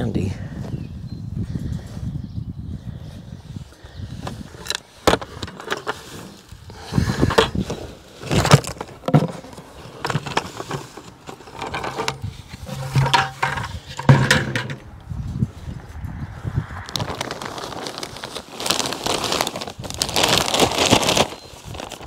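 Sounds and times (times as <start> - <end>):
bucket knocking and scraping: 4.6 - 14.9
soil rustling as poured: 16.7 - 22.0.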